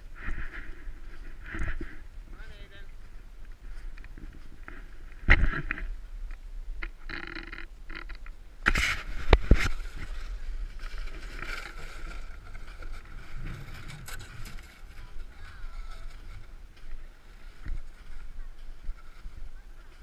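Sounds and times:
footsteps crunching through snow: 0:08.8 - 0:20.0.

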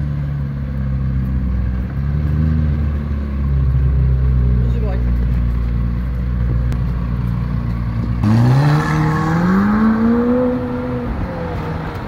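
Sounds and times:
car engine rumbling: 0:00.0 - 0:12.0
car accelerating away: 0:07.9 - 0:12.0.

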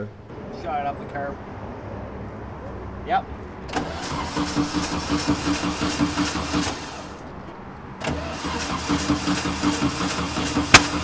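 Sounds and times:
engine popping: 0:03.7 - 0:07.1, 0:08.0 - 0:11.0
starter cranking engine: 0:03.7 - 0:07.2, 0:08.0 - 0:11.0.

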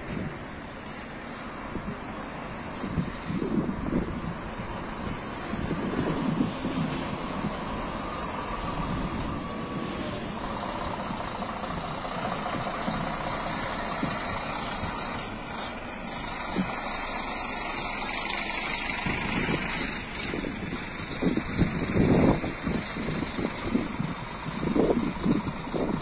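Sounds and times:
bus diesel engines running: 0:00.0 - 0:26.0
low bumps: 0:00.0 - 0:26.0.

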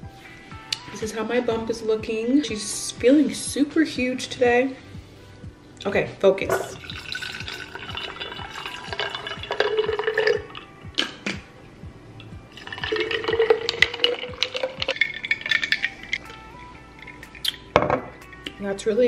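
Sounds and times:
background music: 0:00.0 - 0:19.0
juice pouring into glass jar: 0:06.5 - 0:10.7, 0:12.5 - 0:18.5.

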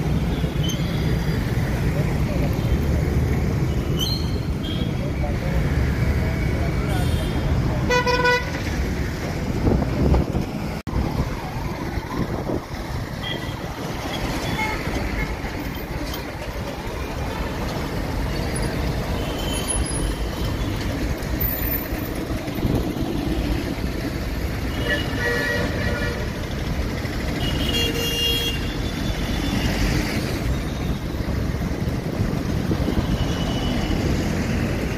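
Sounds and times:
road traffic rumble: 0:00.0 - 0:34.9
vehicle horns tooting: 0:06.9 - 0:08.6, 0:24.7 - 0:26.4, 0:27.4 - 0:29.6.

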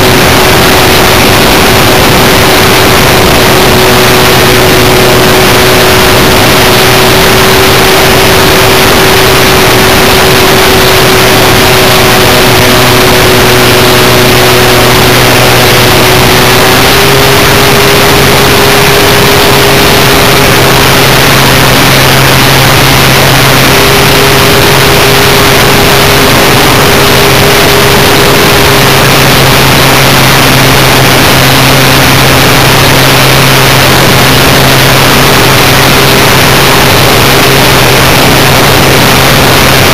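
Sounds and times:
model plane motor droning: 0:00.0 - 0:39.9
rush of wind noise: 0:00.0 - 0:39.9.

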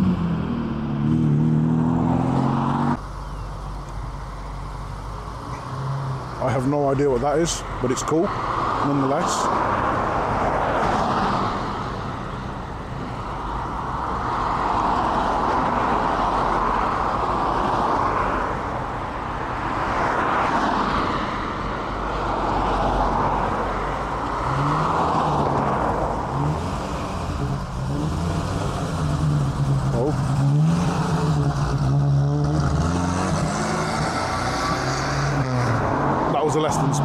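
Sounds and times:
cars passing: 0:00.0 - 0:37.0
car engine pulling away: 0:24.2 - 0:36.0.

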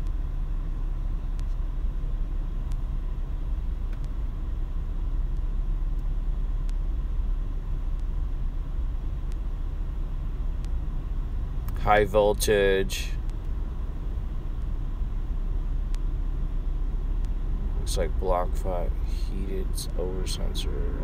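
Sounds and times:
car low rumble from inside: 0:00.0 - 0:21.0
faint ticks: 0:01.3 - 0:01.7, 0:02.6 - 0:03.0, 0:03.8 - 0:04.3, 0:05.3 - 0:06.9, 0:07.9 - 0:08.2, 0:09.2 - 0:09.5, 0:10.6 - 0:10.8, 0:13.2 - 0:13.6, 0:15.8 - 0:16.1, 0:17.2 - 0:17.4.

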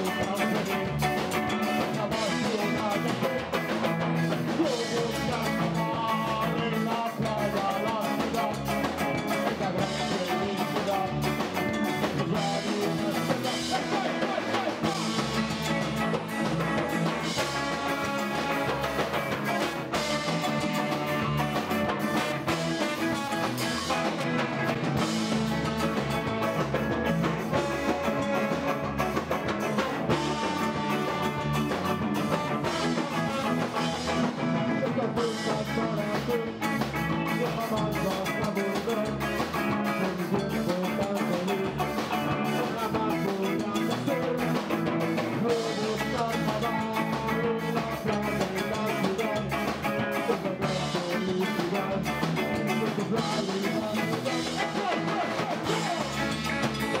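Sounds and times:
drum kit: 0:00.0 - 0:57.0
electric guitar: 0:00.0 - 0:57.0
person singing: 0:00.0 - 0:57.0
trombone: 0:04.6 - 0:36.5.

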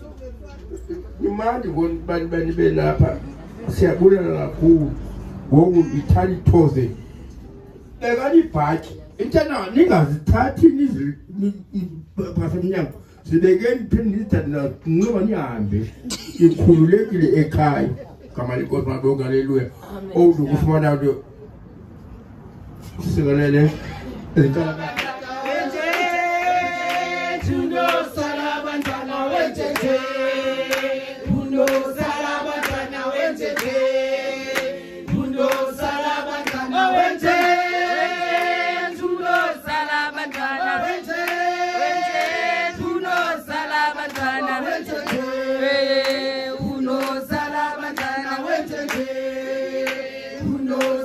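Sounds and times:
group of voices singing: 0:23.8 - 0:51.0
sharp hand claps: 0:25.0 - 0:26.2, 0:28.7 - 0:29.1, 0:30.7 - 0:31.0, 0:31.6 - 0:32.9, 0:34.5 - 0:36.7, 0:40.3 - 0:40.6, 0:46.0 - 0:47.2, 0:47.9 - 0:48.2, 0:48.8 - 0:49.1, 0:49.8 - 0:50.1, 0:50.7 - 0:51.0.

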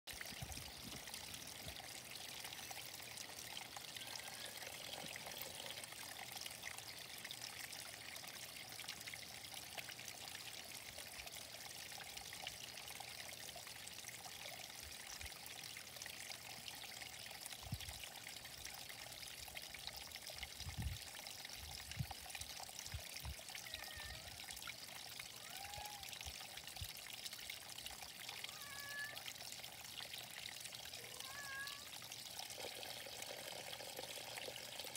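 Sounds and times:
water trickling into pond: 0:00.1 - 0:34.9.

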